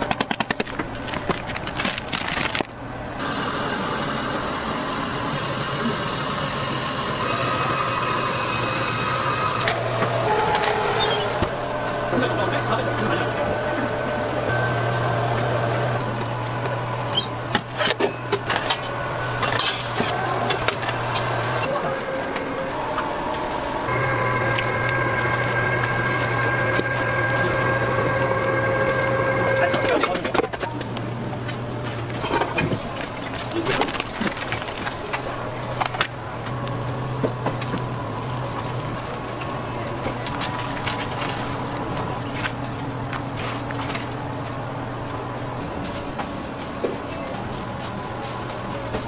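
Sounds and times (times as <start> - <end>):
low mechanical hum: 0.0 - 49.0
stand mixer motor humming: 3.2 - 10.4, 23.9 - 30.0
faint high tone: 10.0 - 12.6.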